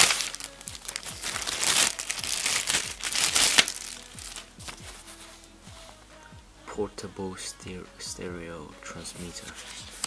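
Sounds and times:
plastic bag crinkling: 0:00.0 - 0:04.9.

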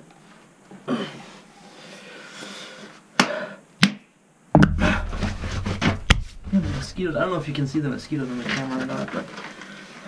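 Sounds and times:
sharp knocks: 0:04.6 - 0:06.9
low handling rumble: 0:04.6 - 0:08.1.

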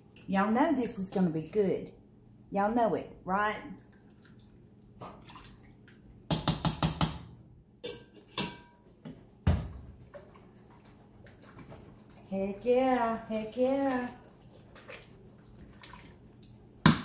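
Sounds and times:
metal ladle clinking on pots: 0:07.8 - 0:08.8.

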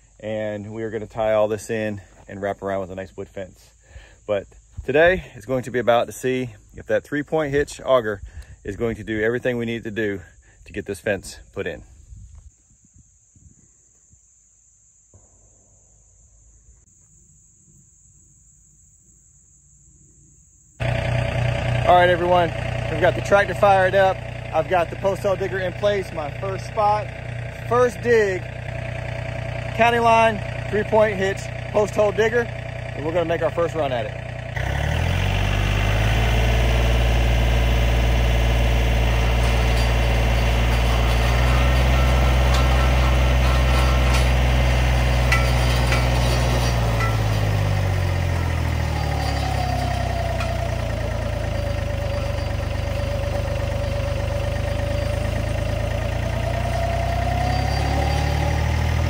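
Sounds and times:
high-pitched insect chorus: 0:00.0 - 0:20.8, 0:37.2 - 0:59.0
tractor diesel engine running: 0:20.8 - 0:59.0.

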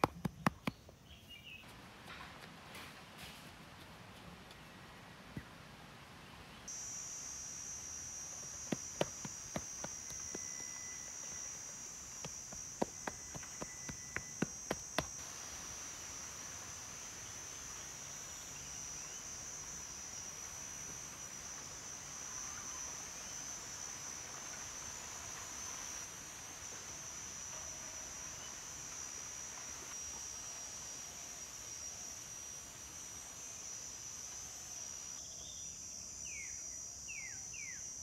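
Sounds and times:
high insect drone: 0:06.7 - 0:38.0
sharp taps: 0:08.4 - 0:10.8, 0:12.2 - 0:15.2.

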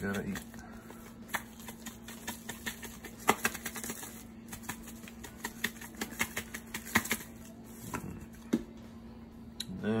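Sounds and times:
faint hum: 0:00.0 - 0:10.0
spice shaker rattling: 0:01.2 - 0:07.4.

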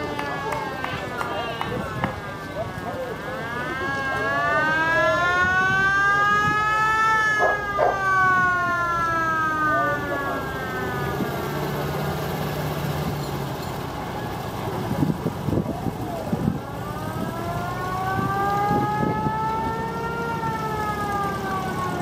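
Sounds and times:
vehicle engines running: 0:00.0 - 0:22.0
siren wailing: 0:02.4 - 0:11.6, 0:15.7 - 0:22.0.

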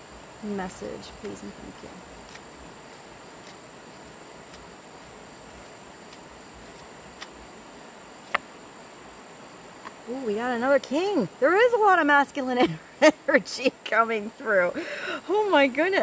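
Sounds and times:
insect trilling: 0:00.0 - 0:12.4.

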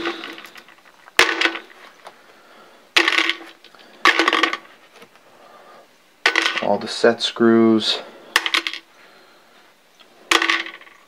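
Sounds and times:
screws clattering into a container: 0:00.0 - 0:01.8, 0:03.0 - 0:04.7, 0:06.2 - 0:06.7, 0:08.4 - 0:08.8, 0:10.3 - 0:11.0.

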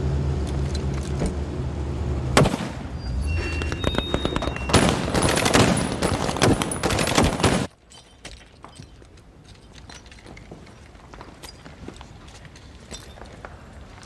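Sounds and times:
rapid rifle gunfire: 0:03.8 - 0:07.7.

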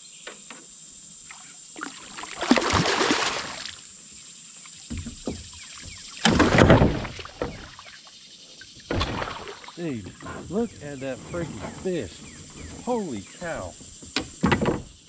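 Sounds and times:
fish thrashing and splashing: 0:01.8 - 0:03.8, 0:06.2 - 0:07.9, 0:08.9 - 0:10.7.

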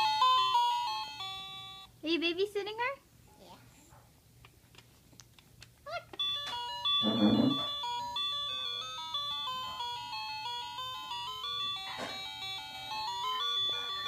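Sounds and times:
toy playing electronic beeping tune: 0:00.0 - 0:01.9, 0:06.2 - 0:14.0.

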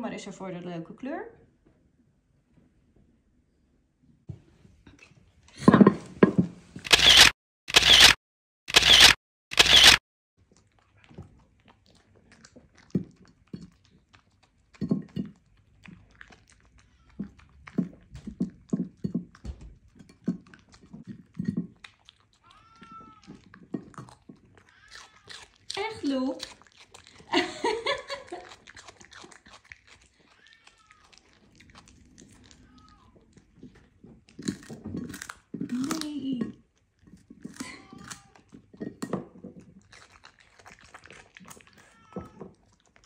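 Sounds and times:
dog crunching vegetables: 0:08.7 - 0:43.0
dog nibbling and chewing: 0:09.7 - 0:43.0.

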